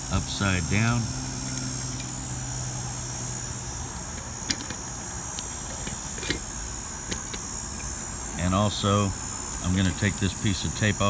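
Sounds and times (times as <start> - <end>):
background hum: 0.0 - 11.0
metal lid clicking on glass jar: 5.7 - 6.4.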